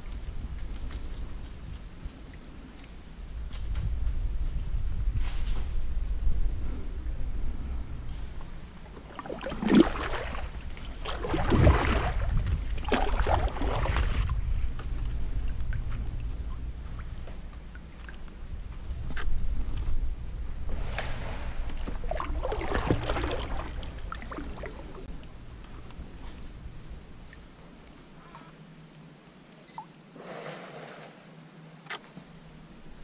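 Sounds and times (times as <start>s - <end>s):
low rumble: 3.2s - 27.7s
water sloshing against hull: 7.1s - 28.5s
paddle strokes splashing: 8.7s - 18.3s, 20.6s - 26.2s.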